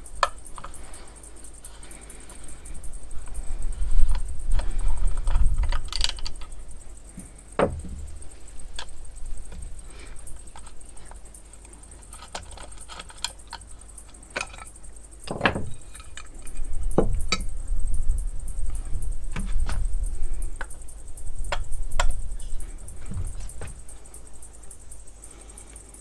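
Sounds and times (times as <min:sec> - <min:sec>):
metal parts and tools clicking: 0:04.0 - 0:06.8, 0:08.2 - 0:17.5.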